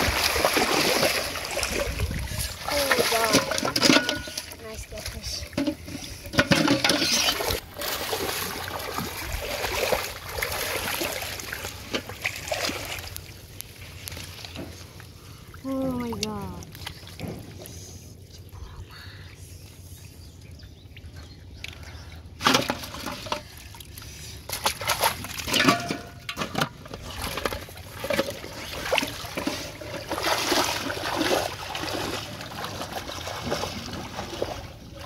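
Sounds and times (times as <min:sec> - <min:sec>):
water pouring and splashing: 0:00.0 - 0:17.7, 0:22.4 - 0:35.0.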